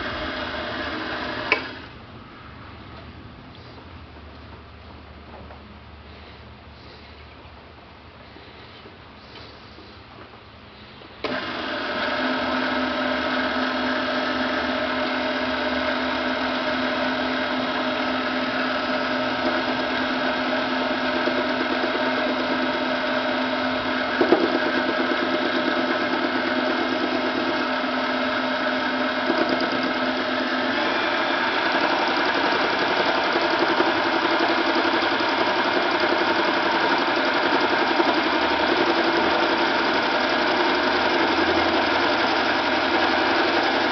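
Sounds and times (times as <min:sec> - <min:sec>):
lathe motor whining: 0:00.0 - 0:02.0, 0:11.2 - 0:43.9.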